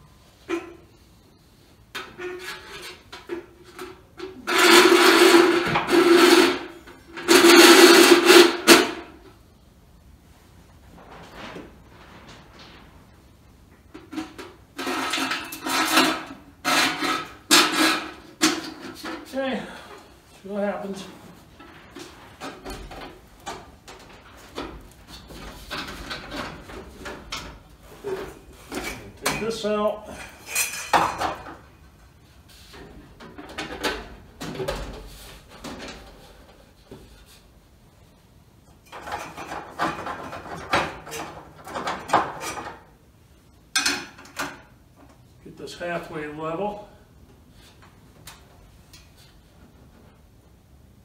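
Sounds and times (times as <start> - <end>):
metal pipe scraping and grinding: 2.0 - 9.1, 13.9 - 19.2.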